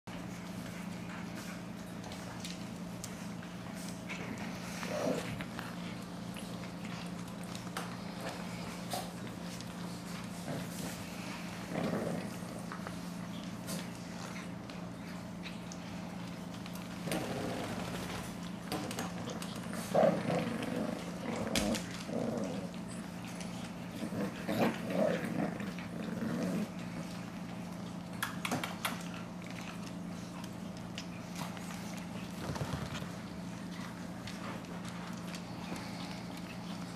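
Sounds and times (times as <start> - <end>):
low steady hum: 0.1 - 36.9
puppies play-growling: 0.1 - 36.9.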